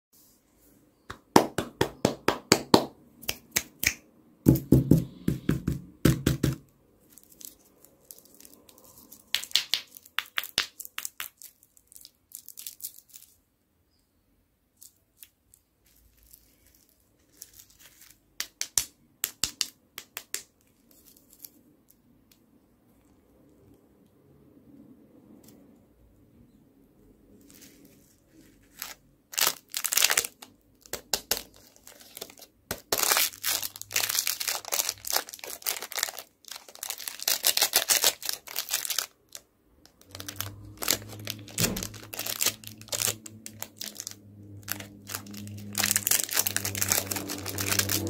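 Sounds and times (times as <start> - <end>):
plastic wrappers crinkling: 7.0 - 13.4, 14.8 - 18.6, 27.3 - 48.0.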